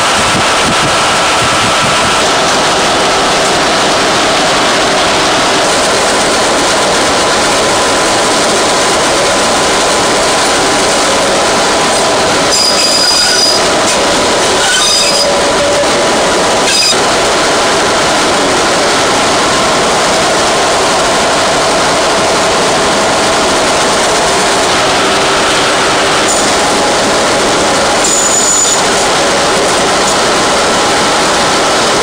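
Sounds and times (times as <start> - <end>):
train wheels rumbling on rail: 0.0 - 32.0
train wheel squeals: 12.0 - 16.0, 16.6 - 17.1, 28.0 - 29.0.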